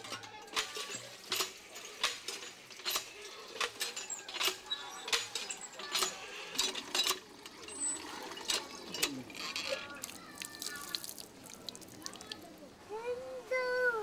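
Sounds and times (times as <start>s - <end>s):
hand pump handle clanking and squeaking: 0.0s - 10.1s.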